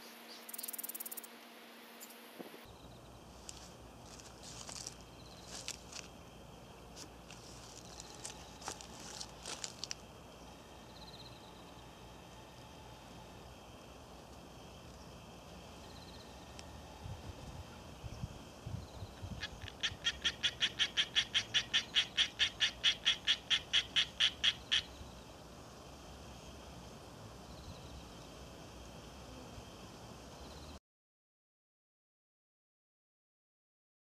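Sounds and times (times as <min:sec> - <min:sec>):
animal chirping: 0:19.2 - 0:25.0.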